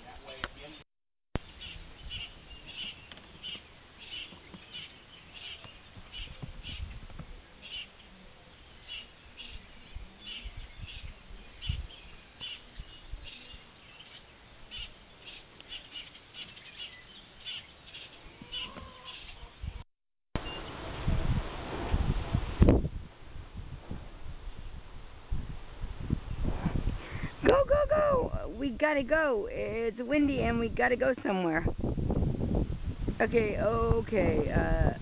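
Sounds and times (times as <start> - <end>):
small birds chirping: 0.0 - 0.8, 1.4 - 19.8
low rumbles and thumps: 5.9 - 7.4.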